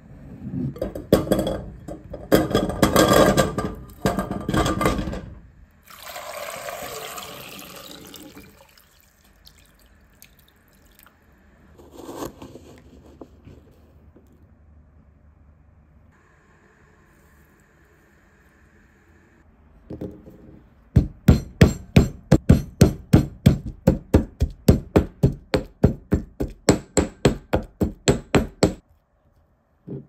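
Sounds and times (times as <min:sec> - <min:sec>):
water pouring into pot: 0:05.9 - 0:11.1
scrape: 0:11.7 - 0:14.1.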